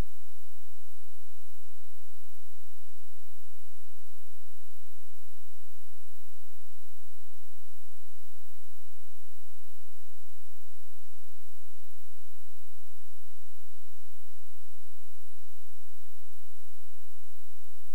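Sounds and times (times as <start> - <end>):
electrical hum: 0.0 - 17.9.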